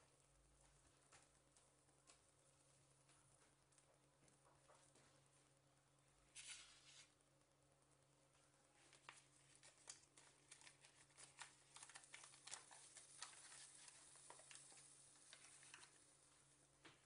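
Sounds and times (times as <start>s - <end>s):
crackling sizzle of toasting sandwich: 9.1s - 16.2s.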